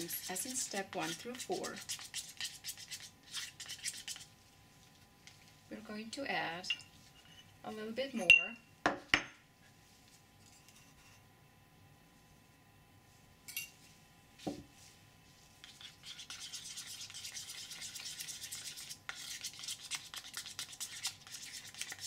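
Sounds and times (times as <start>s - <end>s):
spatula scraping in bowl: 0.0s - 4.3s, 15.6s - 22.0s.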